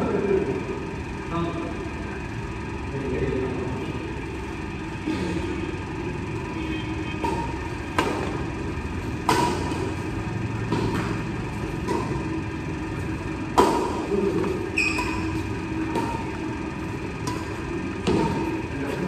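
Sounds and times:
racket hitting shuttlecock: 0:07.0 - 0:18.7
shoe squeak: 0:14.7 - 0:15.5.

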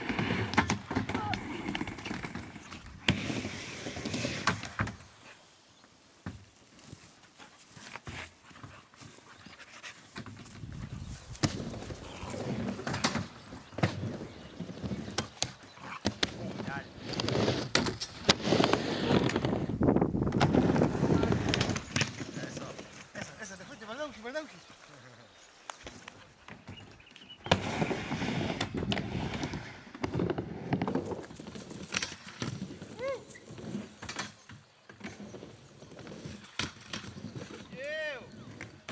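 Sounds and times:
skateboard wheels rolling on plywood: 0:00.0 - 0:24.1, 0:25.8 - 0:38.9
dogs panting: 0:07.3 - 0:12.8, 0:25.9 - 0:27.0.

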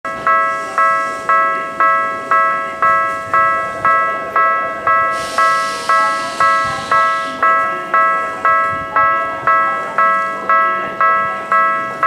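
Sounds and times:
electronic warning bell ringing: 0:00.1 - 0:12.0
burst of hiss: 0:05.1 - 0:07.4.

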